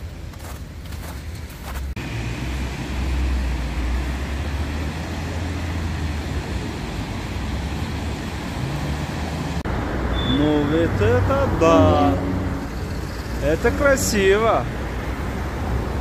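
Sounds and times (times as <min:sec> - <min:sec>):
footsteps crunching on snow: 0:00.0 - 0:02.0
cars driving past: 0:01.7 - 0:16.0.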